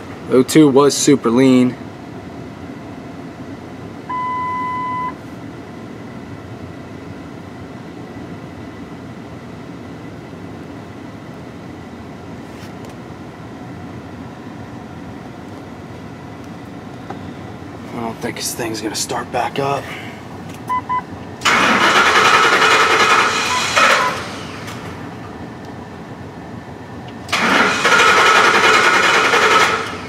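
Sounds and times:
electronic beep: 4.1s - 5.2s, 20.7s - 21.1s.

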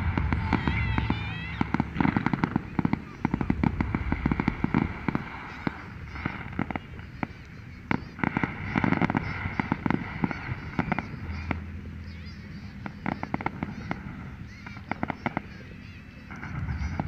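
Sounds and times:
fireworks crackling and popping: 0.0s - 17.0s.

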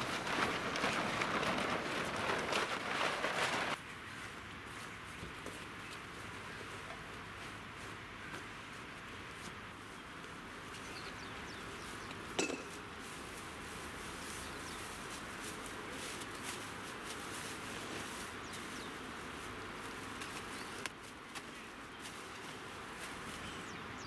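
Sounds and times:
plastic bags rustling: 0.0s - 3.8s
steady outdoor hiss: 0.0s - 24.0s.

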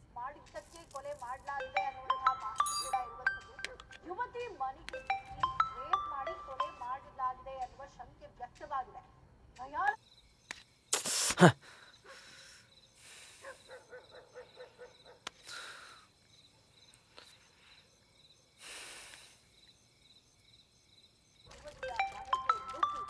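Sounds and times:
crickets chirping: 0.0s - 22.6s
quick chirps: 0.3s - 16.1s, 21.4s - 23.0s.

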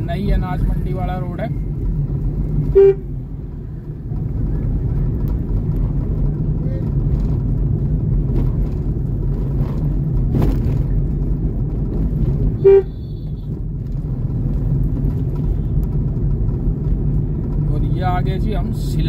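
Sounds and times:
vehicle driving rumble: 0.0s - 19.0s
vehicle horn beep: 2.6s - 3.1s, 12.6s - 13.6s.

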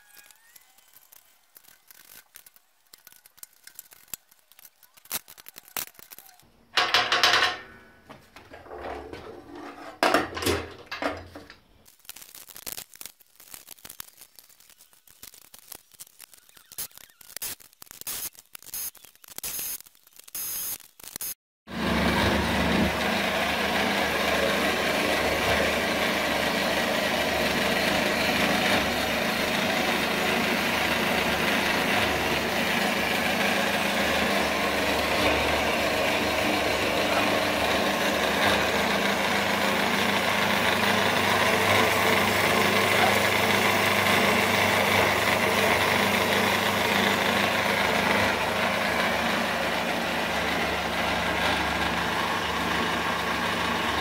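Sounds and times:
bandsaw motor humming: 21.7s - 54.0s.

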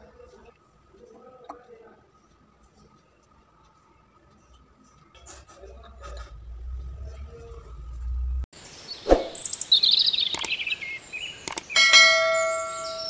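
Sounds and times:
high chirping bird-like calls: 5.2s - 13.0s
sharp clicks: 10.2s - 10.8s, 11.4s - 11.8s
bell-like ding: 11.8s - 13.0s.

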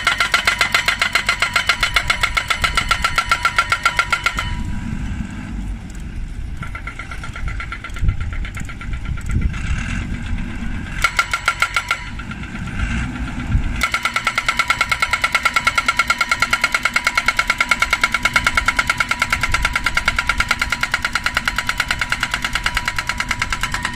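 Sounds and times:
pile driver hammering steel post: 0.0s - 4.7s, 11.0s - 12.7s, 13.8s - 23.9s
machine engine running: 0.0s - 23.9s.

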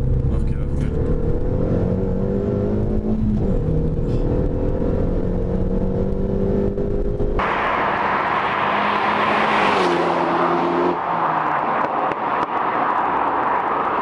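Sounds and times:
steady traffic noise: 0.0s - 14.0s
car passing at speed: 7.4s - 14.0s.

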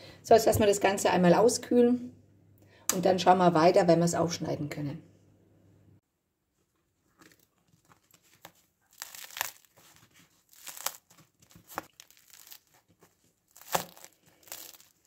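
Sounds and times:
bread crust crackling: 7.2s - 15.0s.

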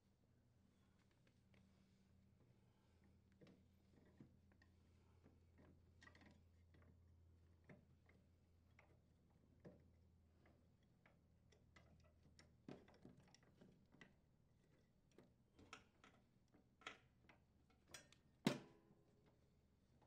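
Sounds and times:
faint clicks and taps of blades: 10.4s - 18.3s.

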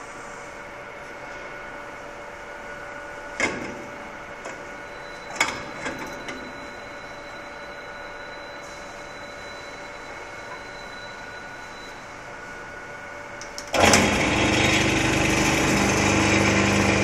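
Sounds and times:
coffee grinder humming: 13.8s - 17.0s.

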